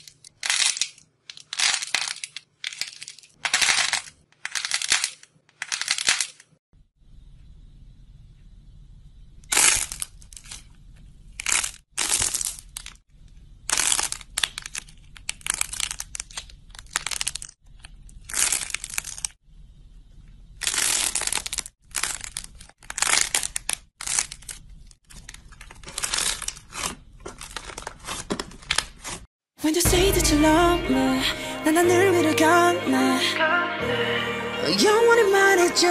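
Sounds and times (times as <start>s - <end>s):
modelling clay crackling: 0.0s - 6.6s, 7.6s - 29.3s.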